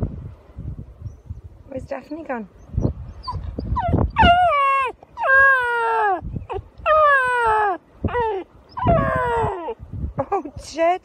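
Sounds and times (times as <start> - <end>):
puppy howling: 3.3 - 9.8.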